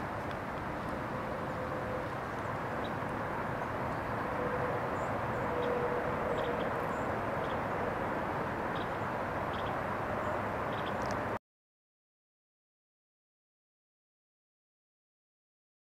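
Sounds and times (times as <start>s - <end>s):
faint drawn-out hum: 0.0s - 11.4s
outdoor background noise: 0.0s - 11.4s.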